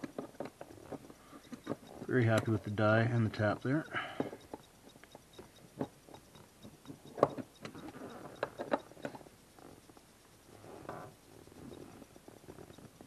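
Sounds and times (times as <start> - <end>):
metal parts clicking and tapping: 0.0 - 9.3.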